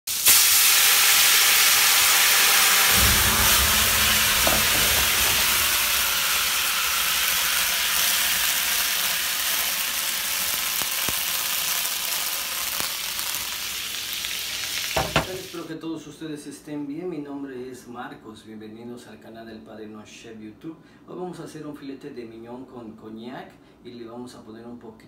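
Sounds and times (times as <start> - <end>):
steaks sizzling in a skillet: 0.1 - 15.6.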